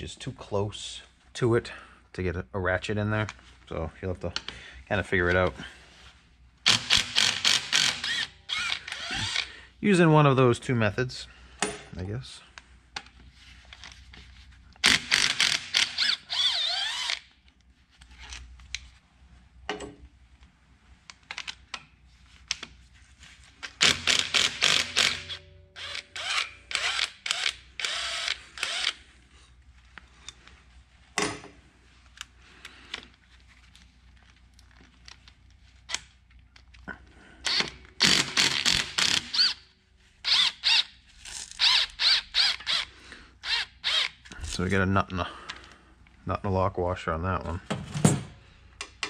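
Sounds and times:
hand ratchet clicking: 0:06.7 - 0:09.5, 0:14.8 - 0:17.3, 0:23.6 - 0:29.0, 0:37.4 - 0:39.6.

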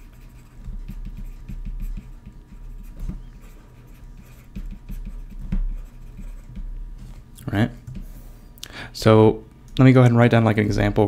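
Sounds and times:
stylus tapping and scratching screen: 0:00.0 - 0:08.2.

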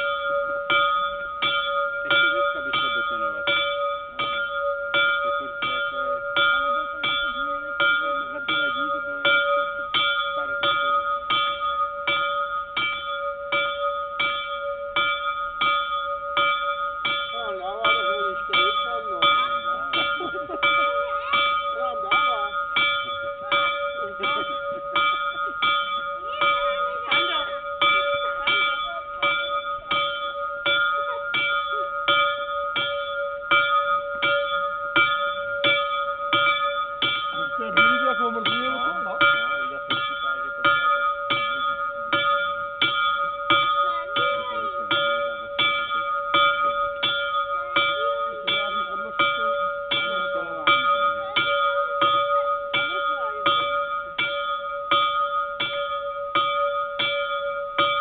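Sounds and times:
small bell ringing: 0:00.0 - 0:58.0.

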